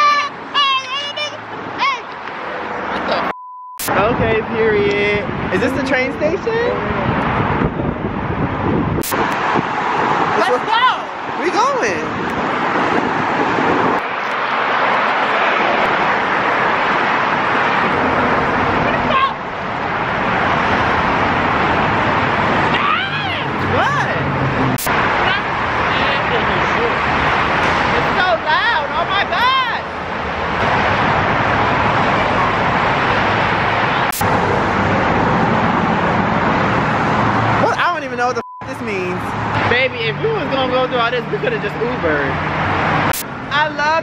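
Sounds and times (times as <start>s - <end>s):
loud traffic noise: 0.0s - 44.0s
vehicle passing close: 3.9s - 38.2s.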